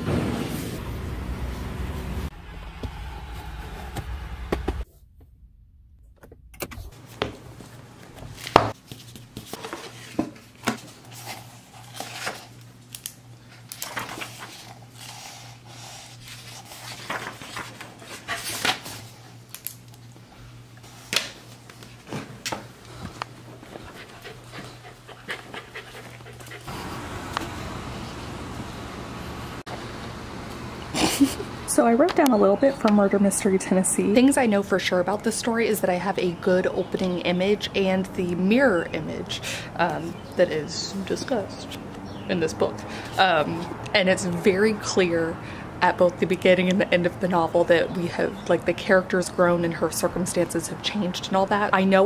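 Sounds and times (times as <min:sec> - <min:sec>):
dog panting: 0:23.7 - 0:26.7.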